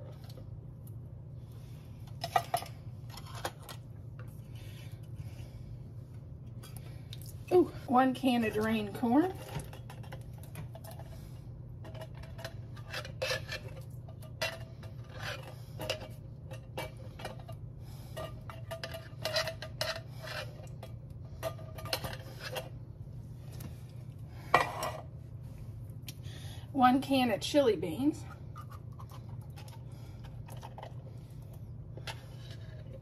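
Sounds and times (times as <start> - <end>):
steady low hum: 0.0 - 33.0
spatula scraping a metal can: 12.8 - 16.1.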